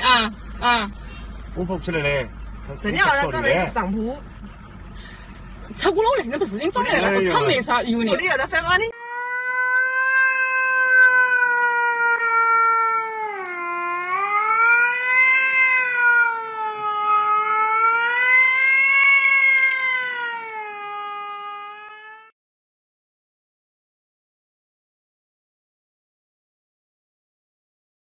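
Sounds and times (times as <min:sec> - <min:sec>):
cat yowling: 0:08.9 - 0:22.3.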